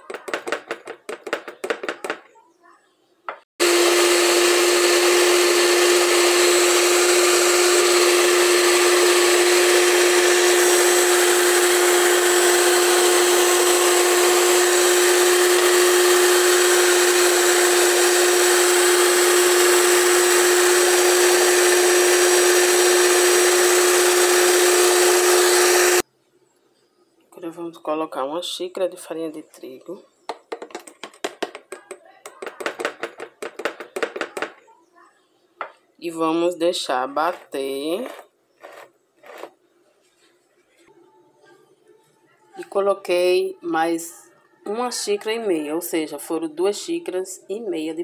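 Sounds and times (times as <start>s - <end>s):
stand mixer whisking batter: 3.6s - 26.0s.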